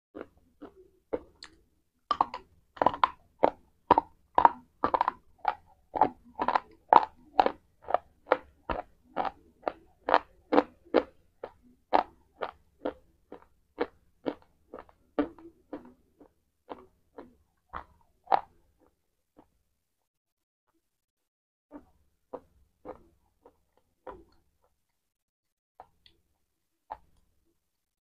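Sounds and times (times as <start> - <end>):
crunchy chewing of chalk: 0.2 - 19.5, 21.7 - 24.9.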